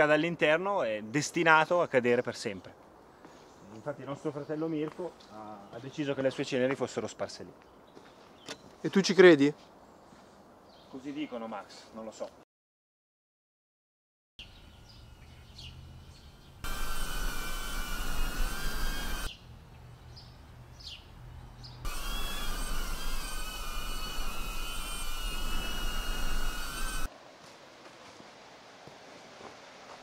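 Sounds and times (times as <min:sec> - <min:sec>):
birds chirping: 0:14.4 - 0:27.1
drone motors whining: 0:16.6 - 0:19.3, 0:21.9 - 0:27.1.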